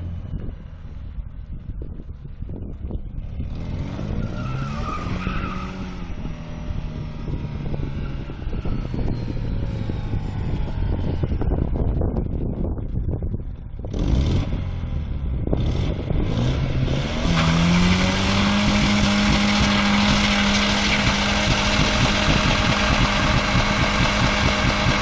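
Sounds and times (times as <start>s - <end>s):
tyres squealing on asphalt: 4.0s - 6.2s, 17.2s - 25.0s
car engine revving: 13.9s - 25.0s.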